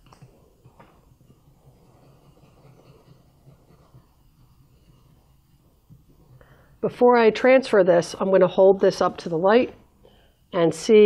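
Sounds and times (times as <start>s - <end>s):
pencil scribbling on paper: 1.0s - 6.4s.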